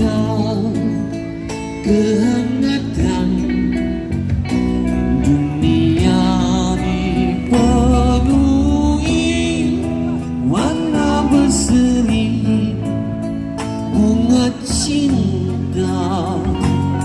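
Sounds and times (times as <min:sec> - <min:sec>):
drums: 0:00.0 - 0:17.0
electric guitars: 0:00.0 - 0:17.0
rock band playing: 0:00.0 - 0:17.0
person singing long held notes: 0:05.0 - 0:13.2.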